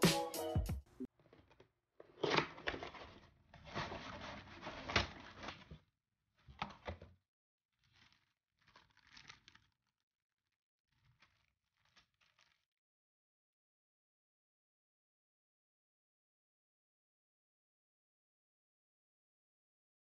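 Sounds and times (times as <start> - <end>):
paper sheets rustling: 2.2 - 5.8.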